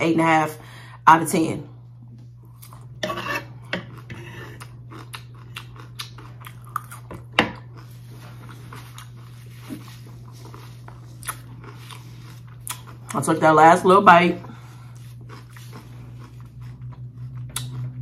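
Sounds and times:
steady low hum: 0:00.0 - 0:18.0
chewing and crunching salad: 0:02.2 - 0:18.0
fork scraping on wooden board: 0:03.0 - 0:04.6.

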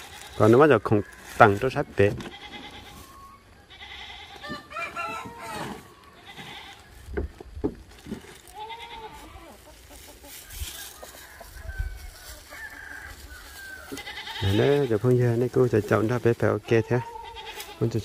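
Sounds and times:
farm animal calls: 0:00.0 - 0:18.0
plastic bags rustling: 0:06.7 - 0:14.4.

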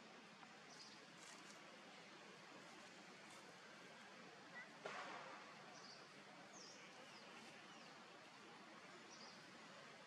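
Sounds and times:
soft rustle: 0:00.8 - 0:04.2.

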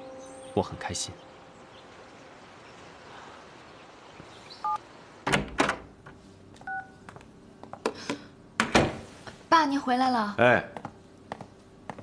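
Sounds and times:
front door thudding: 0:05.2 - 0:05.9, 0:08.6 - 0:09.1.

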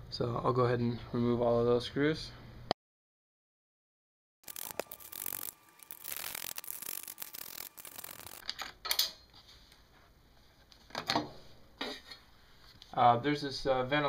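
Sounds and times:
socket ratchet clicking: 0:04.5 - 0:08.4.

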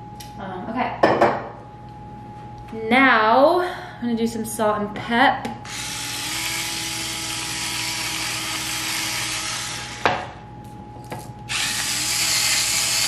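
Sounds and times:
electric grinder whirring: 0:05.6 - 0:10.2, 0:11.5 - 0:13.0
grinder knocking on counter: 0:10.0 - 0:10.3.

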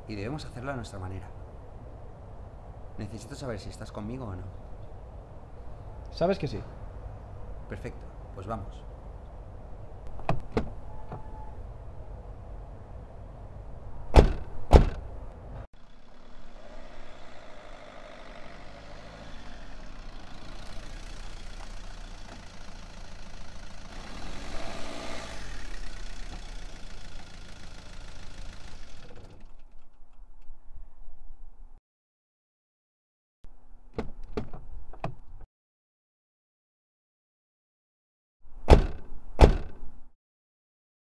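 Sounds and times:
car doors slamming: 0:14.1 - 0:15.1, 0:38.7 - 0:39.8
car driving on gravel: 0:15.8 - 0:29.7.

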